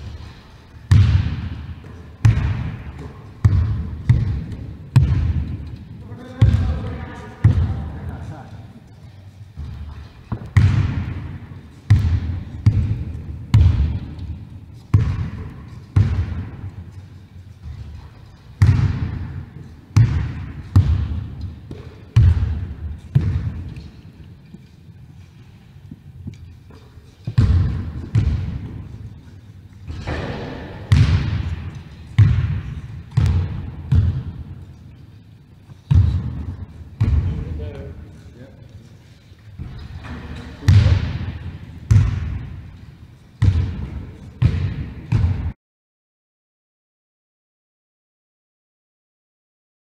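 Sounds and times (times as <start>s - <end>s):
basketball bouncing on wooden floor: 0.8s - 8.0s, 9.6s - 16.9s, 17.6s - 24.6s, 25.9s - 29.0s, 29.9s - 34.6s, 35.9s - 37.5s, 39.6s - 42.7s, 43.4s - 45.6s.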